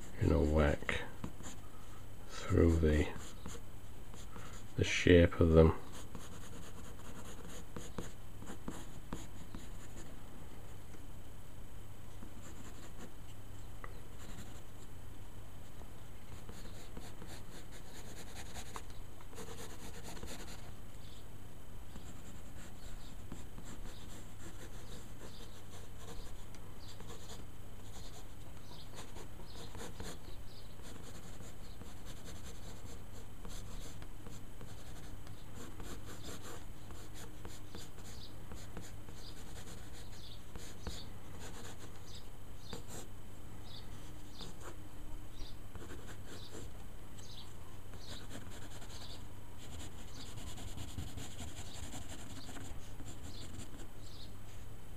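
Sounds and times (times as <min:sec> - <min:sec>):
steady low hum: 0:00.0 - 0:54.9
pencil scratching on paper: 0:05.9 - 0:10.0, 0:19.4 - 0:20.7, 0:22.0 - 0:26.4, 0:28.9 - 0:30.2, 0:30.8 - 0:41.9, 0:48.0 - 0:53.8.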